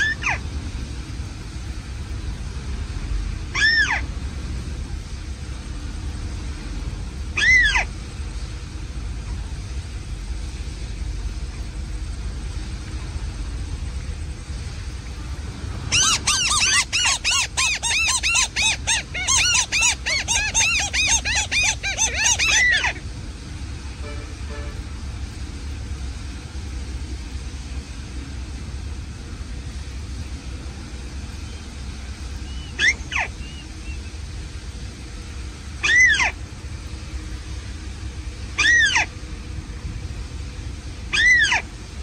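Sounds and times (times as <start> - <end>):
bird calls from speaker: 3.6 - 4.0, 7.4 - 7.9, 15.9 - 23.0, 32.4 - 34.2, 35.8 - 36.4, 38.6 - 39.1, 41.1 - 41.6.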